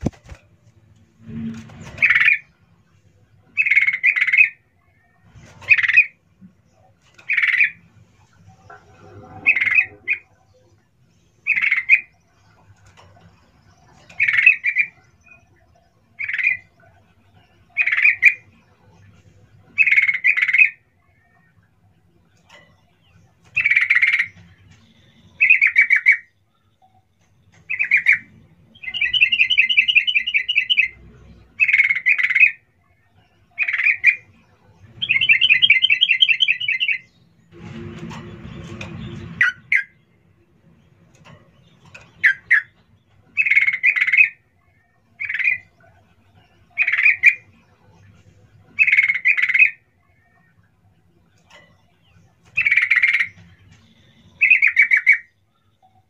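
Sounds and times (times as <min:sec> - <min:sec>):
bird calling: 0:08.5 - 0:10.4, 0:27.6 - 0:31.0, 0:52.6 - 0:55.4.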